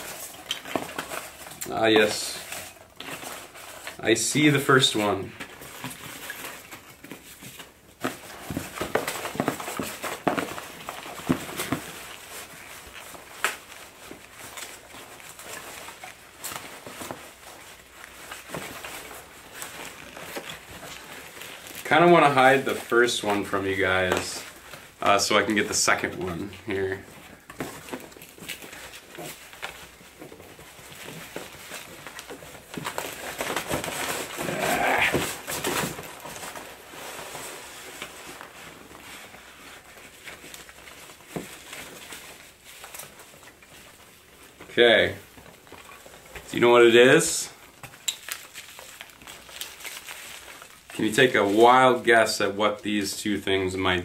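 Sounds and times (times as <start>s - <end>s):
cardboard box creaking: 0.0s - 43.7s
packing peanuts rustling: 0.0s - 54.0s.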